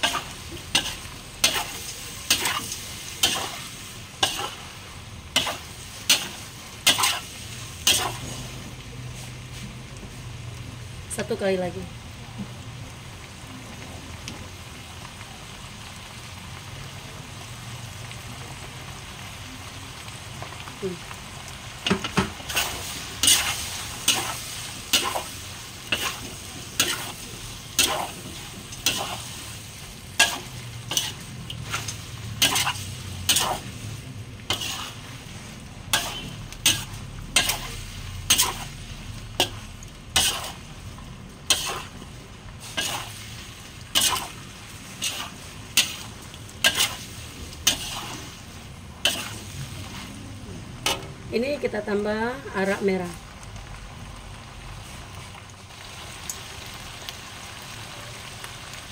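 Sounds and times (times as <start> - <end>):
metal spatula scraping a wok: 0.0 - 9.6, 21.9 - 40.7, 41.4 - 50.2, 50.8 - 51.2
food sizzling in a wok: 0.0 - 58.9.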